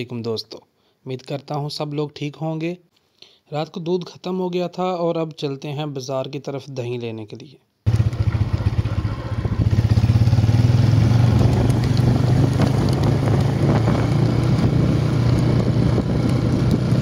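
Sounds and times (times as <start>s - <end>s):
motorcycle engine running: 7.9s - 17.0s.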